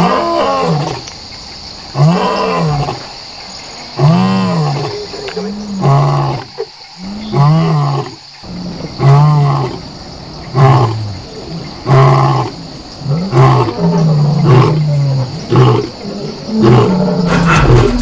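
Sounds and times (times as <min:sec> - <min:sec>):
lion roaring: 0:04.0 - 0:18.0.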